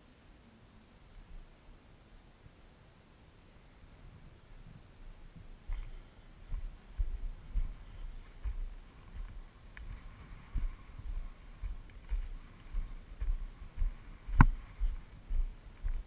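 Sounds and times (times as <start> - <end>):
footsteps on rubble: 5.4 - 16.0.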